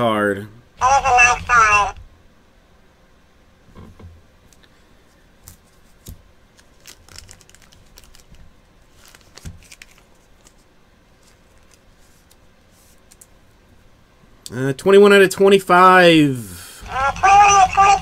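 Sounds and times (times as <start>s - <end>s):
cards and plastic sleeve rustling: 5.5s - 13.3s.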